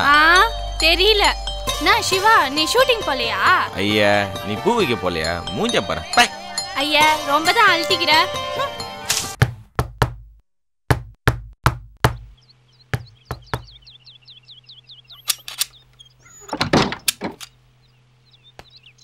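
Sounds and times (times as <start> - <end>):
faint birds chirping: 0.0 - 9.0, 12.0 - 19.0
knocking on wooden door: 9.4 - 10.2, 10.9 - 13.8
door pulled open: 16.3 - 17.5.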